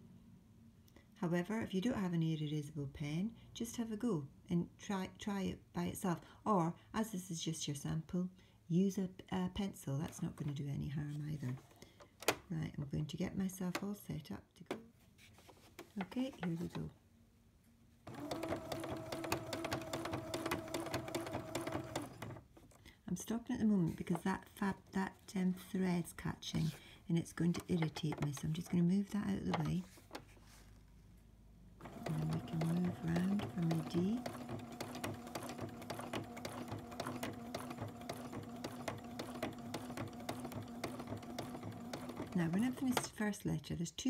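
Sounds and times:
sewing machine stitching: 18.1s - 22.5s, 26.5s - 30.3s, 31.8s - 43.2s.

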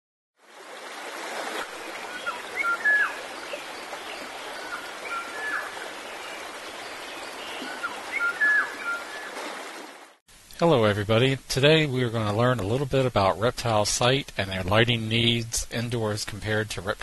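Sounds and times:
running water: 0.4s - 10.2s.

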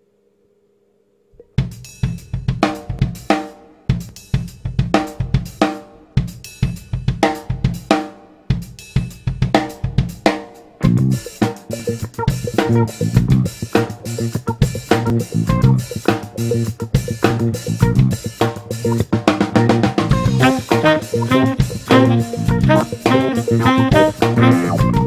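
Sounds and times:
drum kit beat: 1.6s - 25.0s
band instruments: 10.8s - 25.0s.

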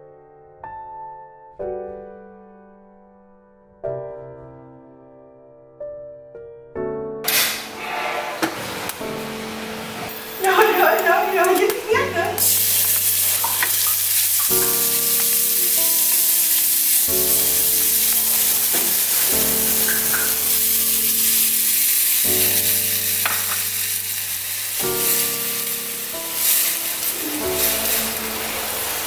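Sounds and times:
food sizzling in oil: 8.7s - 29.0s
water pouring into wok: 10.1s - 29.0s.

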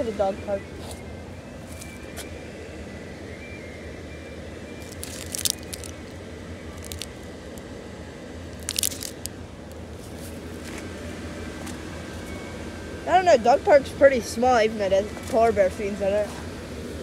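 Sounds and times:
blower fans humming: 0.0s - 17.0s
crunching: 4.8s - 6.1s, 6.8s - 7.6s, 8.5s - 9.3s.

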